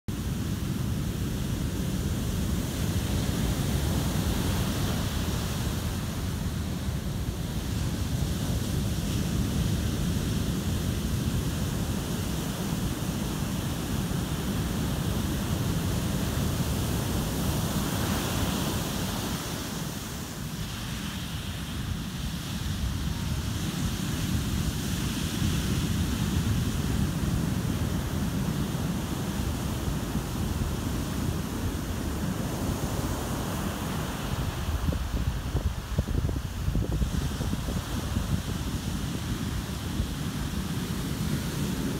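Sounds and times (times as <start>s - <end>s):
ocean surf breaking: 0.2s - 41.9s
wind buffeting microphone: 21.9s - 41.9s.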